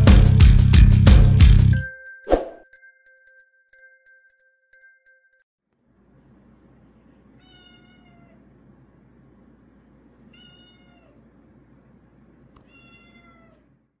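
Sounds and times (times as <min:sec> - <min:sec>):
faint high-pitched cries: 0:07.4 - 0:08.5, 0:10.3 - 0:11.2, 0:12.6 - 0:13.8.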